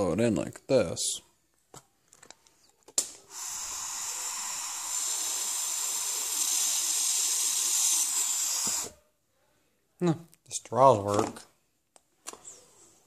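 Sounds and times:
breath blown through tubes hissing: 3.2s - 9.0s.

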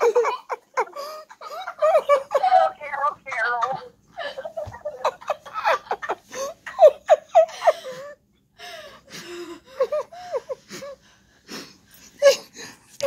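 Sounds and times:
person laughing: 0.0s - 8.1s.

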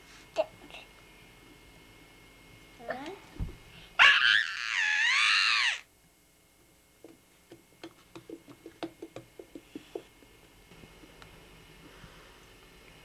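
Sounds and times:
boy screaming: 4.0s - 5.9s.

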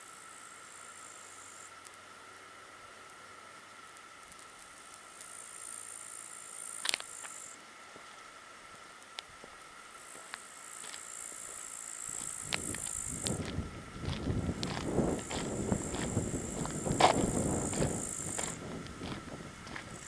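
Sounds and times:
insects buzzing: 0.0s - 20.0s.

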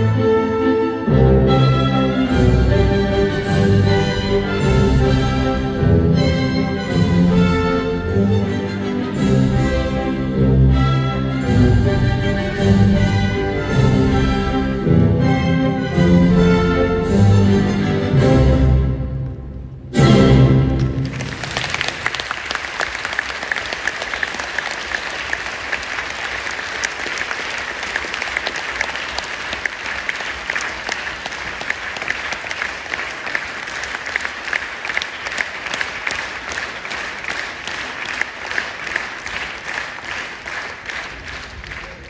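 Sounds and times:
audience applauding: 20.7s - 42.0s.

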